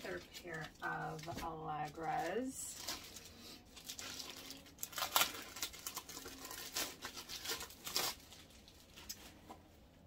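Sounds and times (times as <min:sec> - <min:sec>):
plastic bag crinkling: 0:00.0 - 0:09.5.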